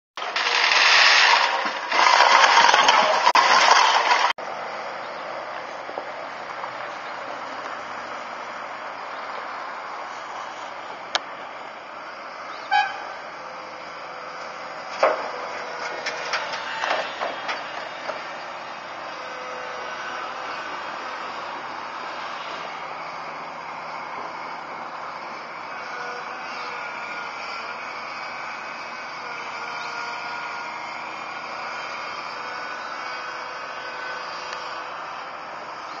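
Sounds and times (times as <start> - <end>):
soil and bucket hitting steel bed: 0.2 - 4.3
loud noise: 0.2 - 4.4
excavator diesel engine running: 0.2 - 36.0.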